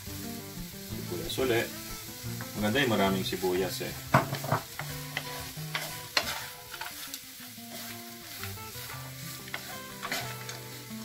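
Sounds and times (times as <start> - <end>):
pork and onions sizzling in pan: 0.0 - 11.0
wooden spatula scraping a pan: 2.4 - 11.0.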